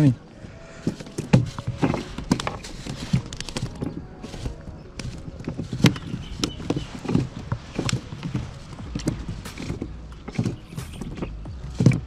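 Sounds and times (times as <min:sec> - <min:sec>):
fish flapping on plastic deck: 0:01.0 - 0:09.9.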